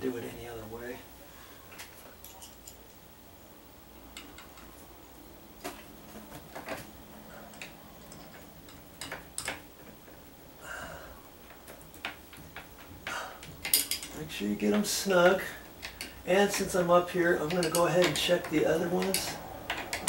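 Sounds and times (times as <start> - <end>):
low steady hum: 0.0 - 20.0
metal hardware clicks and taps: 4.1 - 4.7, 7.5 - 10.2, 11.5 - 20.0.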